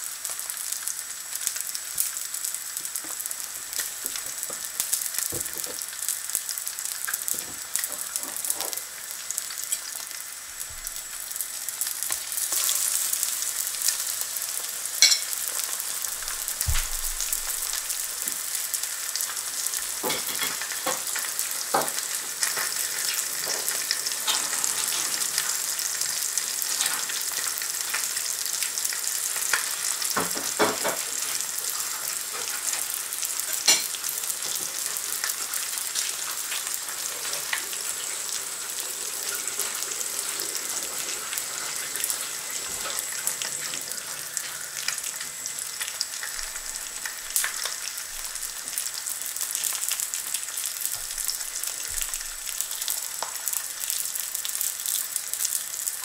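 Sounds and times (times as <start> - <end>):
food sizzling in a pan: 0.0 - 56.0.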